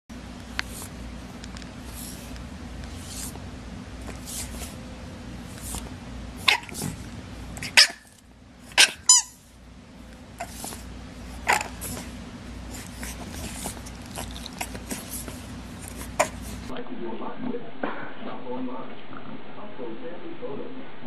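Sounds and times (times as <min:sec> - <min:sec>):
steady low hum: 0:00.1 - 0:21.0
puppy yapping: 0:06.4 - 0:07.0, 0:07.6 - 0:09.4, 0:11.4 - 0:12.1, 0:16.0 - 0:16.6.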